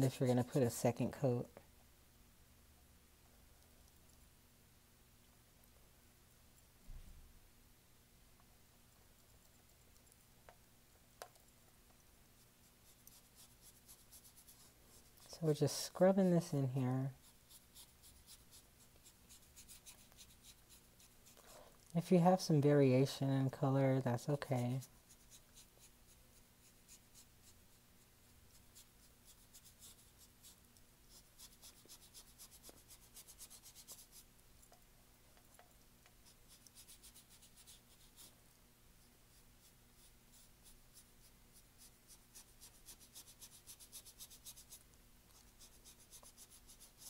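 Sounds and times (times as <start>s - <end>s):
paintbrush scratching on canvas: 0.0s - 1.4s, 12.3s - 21.4s, 22.0s - 34.4s, 36.1s - 47.0s
low steady hum: 0.0s - 47.0s.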